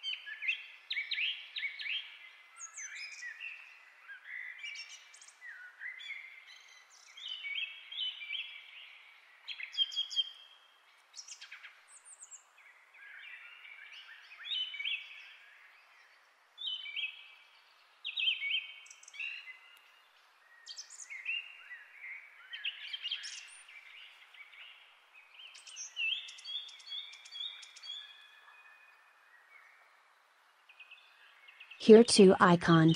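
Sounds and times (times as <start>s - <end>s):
faint steady hiss: 23.4s - 31.6s
birds chirping and singing: 25.4s - 30.1s.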